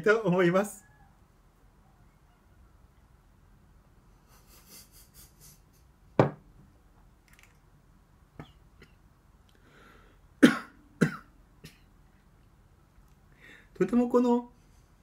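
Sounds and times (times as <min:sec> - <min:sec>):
man coughing: 0:10.4 - 0:11.9.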